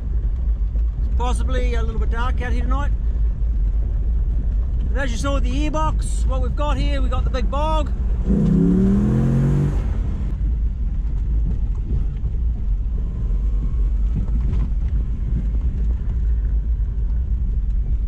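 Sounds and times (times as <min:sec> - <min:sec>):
engine rumble: 0:00.0 - 0:18.0
gravel road noise: 0:00.0 - 0:18.0.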